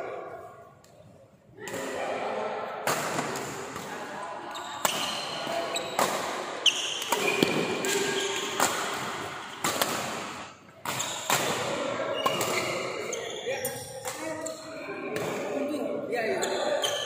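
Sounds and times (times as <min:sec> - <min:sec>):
sneakers squeaking on court floor: 0:04.5 - 0:09.7, 0:10.9 - 0:11.4, 0:12.1 - 0:14.8
rackets hitting shuttlecock: 0:04.8 - 0:13.3.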